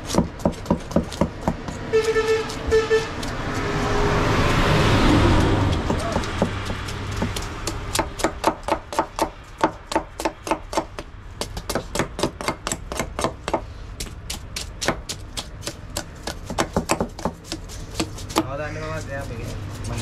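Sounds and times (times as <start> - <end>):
knife scraping fish scales: 17.3 - 20.0.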